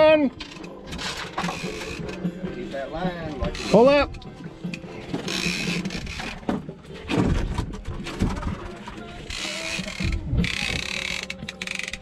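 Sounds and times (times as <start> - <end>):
fishing reel clicking and buzzing: 0.4 - 2.2, 3.4 - 6.4, 9.2 - 12.0.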